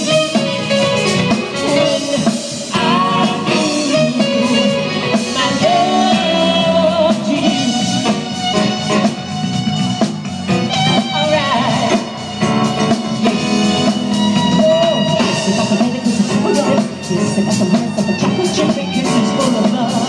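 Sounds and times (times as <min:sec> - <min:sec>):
drum kit: 0:00.0 - 0:20.0
keyboards: 0:00.0 - 0:20.0
woman singing: 0:01.6 - 0:04.3, 0:05.1 - 0:08.1.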